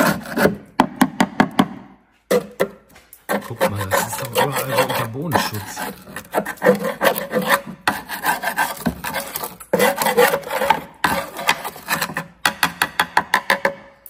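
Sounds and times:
scraping underbody coating: 0:03.2 - 0:12.2.

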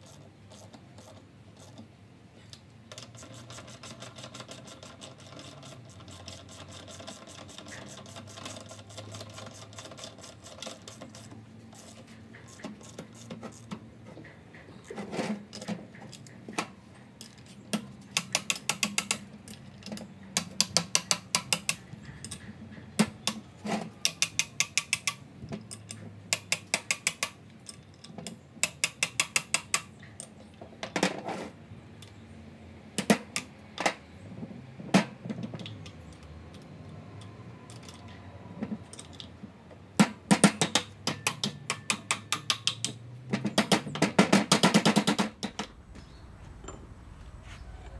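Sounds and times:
hammer tapping on metal spanner: 0:15.5 - 0:23.4, 0:24.0 - 0:30.4, 0:40.0 - 0:45.7.

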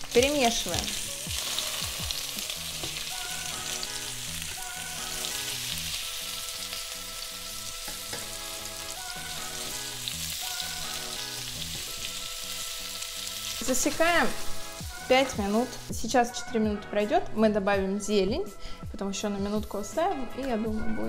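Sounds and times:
vegetables sizzling in a pan: 0:00.0 - 0:16.0
light background music: 0:00.0 - 0:21.0.

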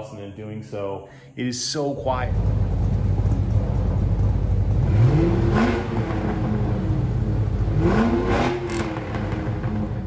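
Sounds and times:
car engines idling: 0:02.0 - 0:10.0
engine revving: 0:02.1 - 0:10.0.

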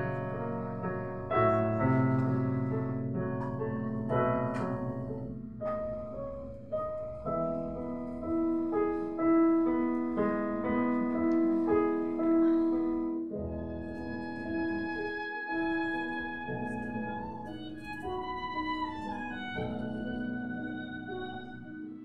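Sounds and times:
slow piano playing: 0:00.0 - 0:22.0.

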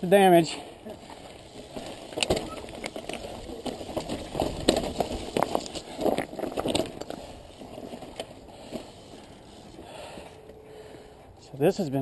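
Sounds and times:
bike tyres crunching on stones: 0:00.1 - 0:11.0
bike rattling: 0:00.1 - 0:11.1.

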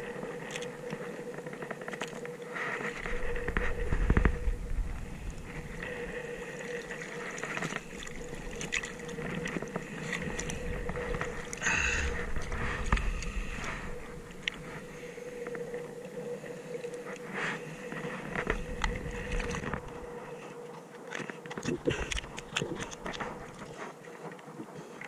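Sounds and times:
water lapping around boat: 0:00.0 - 0:25.0
wind on microphone: 0:02.8 - 0:16.4, 0:17.1 - 0:20.2.

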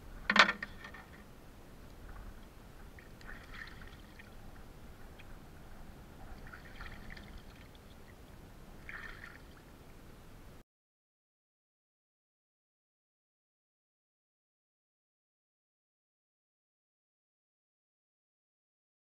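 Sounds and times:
water splashing and dripping: 0:02.9 - 0:05.3, 0:06.3 - 0:08.1, 0:08.8 - 0:09.7.

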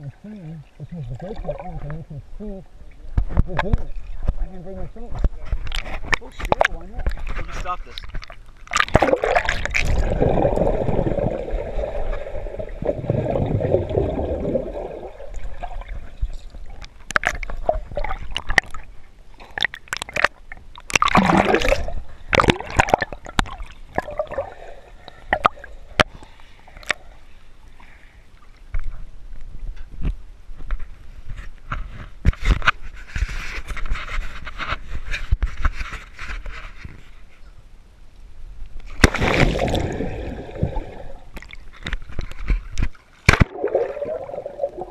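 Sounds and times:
muffled underwater rush: 0:00.0 - 0:19.9, 0:39.0 - 0:41.4, 0:43.3 - 0:44.9
water sloshing and gurgling: 0:00.0 - 0:29.7, 0:38.8 - 0:44.9.

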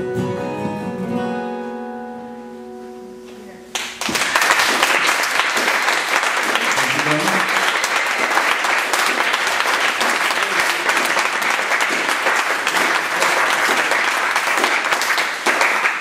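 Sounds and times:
audience applauding: 0:03.7 - 0:16.0.

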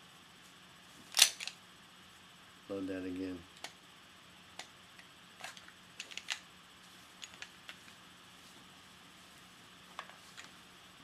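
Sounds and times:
pistol mechanical clicks: 0:01.2 - 0:01.6.

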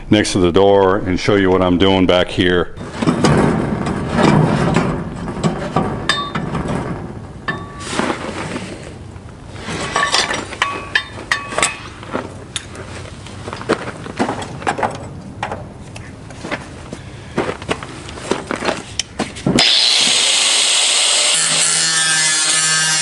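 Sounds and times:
clinks and knocks on metal sheeting: 0:02.8 - 0:08.5, 0:09.7 - 0:15.7
gravel shifting underfoot: 0:06.5 - 0:19.6.

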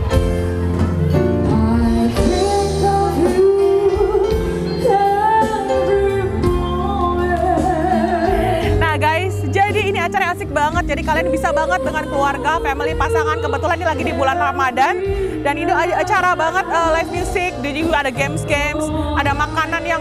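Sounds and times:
bass line: 0:00.0 - 0:20.0
guitar: 0:00.0 - 0:20.0
person singing with vibrato: 0:01.4 - 0:08.9.

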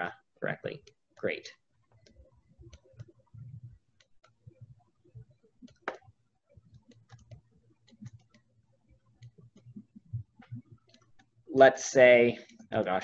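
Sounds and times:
computer mouse clicking: 0:01.9 - 0:04.4, 0:05.3 - 0:11.4
soft low thumps: 0:01.9 - 0:11.5.

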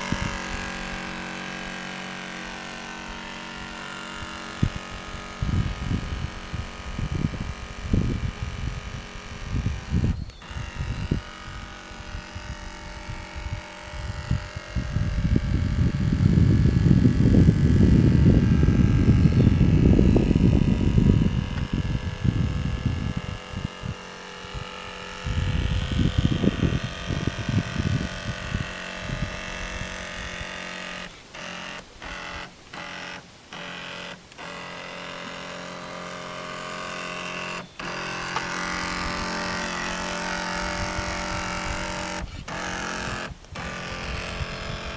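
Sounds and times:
small electric motor humming: 0:00.0 - 0:44.9.

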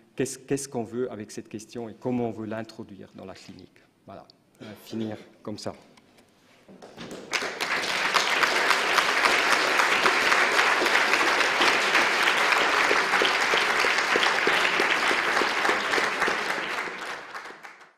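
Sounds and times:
audience applauding: 0:06.8 - 0:17.9.

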